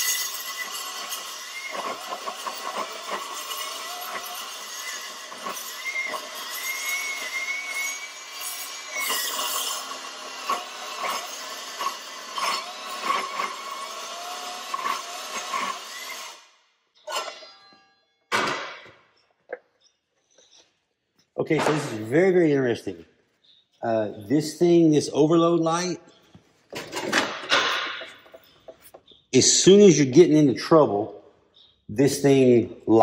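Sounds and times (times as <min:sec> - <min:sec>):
blade chatter on steel: 0:00.0 - 0:16.4
circular saw cutting steel: 0:00.0 - 0:17.8.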